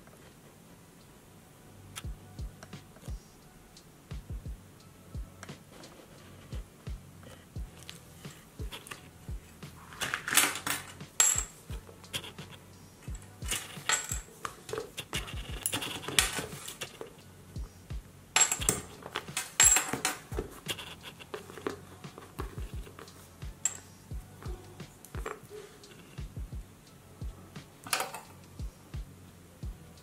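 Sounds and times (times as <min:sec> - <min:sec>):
leather book rustling and clicking: 0:09.7 - 0:12.6, 0:13.4 - 0:17.2, 0:18.4 - 0:23.8
small metal charm clinking: 0:10.0 - 0:12.4, 0:18.4 - 0:21.3, 0:22.9 - 0:23.9.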